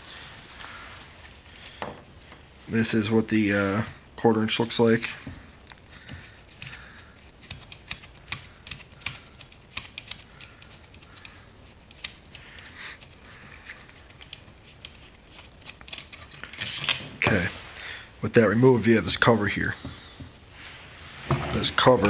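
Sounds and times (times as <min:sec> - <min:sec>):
small metal parts clicking: 0:15.6 - 0:17.0.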